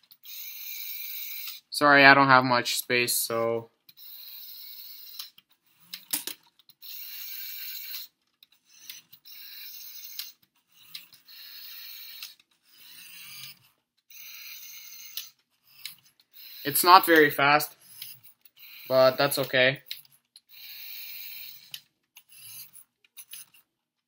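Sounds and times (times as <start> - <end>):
toy car motor and gears whirring: 0.0 - 1.8, 3.2 - 23.8
small clicks: 3.8 - 16.3, 17.9 - 20.8, 21.4 - 23.7.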